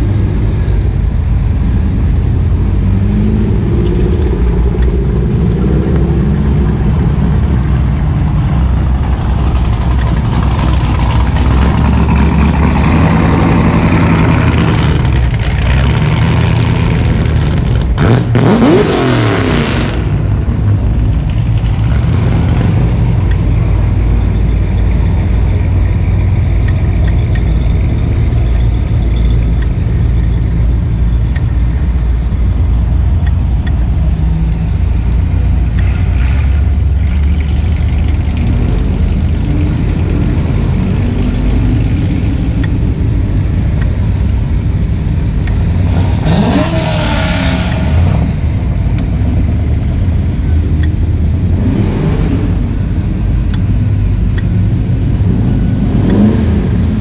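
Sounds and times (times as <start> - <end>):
car engine accelerating: 0.0 - 57.0
car engine revving: 0.0 - 57.0
cars driving slowly past: 0.0 - 57.0.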